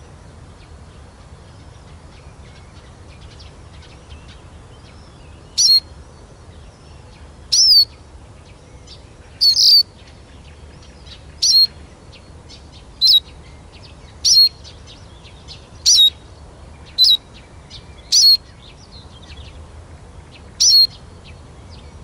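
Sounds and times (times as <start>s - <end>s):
bird twittering song: 0.0s - 22.0s
bird pitch-bending calls: 5.6s - 5.9s, 7.5s - 7.9s, 9.4s - 9.9s, 11.4s - 11.8s, 13.0s - 13.3s, 14.2s - 14.6s, 15.8s - 16.2s, 16.9s - 17.2s, 18.1s - 18.5s, 20.6s - 21.0s.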